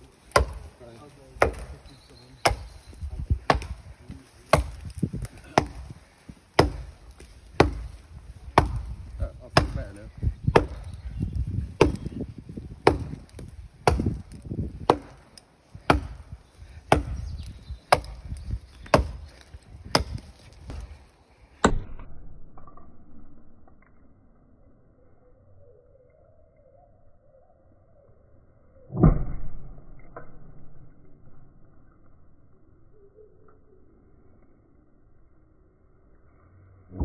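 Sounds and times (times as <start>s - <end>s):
axe chopping tree trunk: 0.3s - 0.8s, 1.4s - 1.8s, 2.4s - 2.8s, 3.4s - 3.8s, 4.5s - 5.9s, 6.5s - 10.9s, 11.8s - 12.2s, 12.8s - 16.3s, 16.9s - 21.0s, 21.6s - 22.3s, 29.0s - 30.4s.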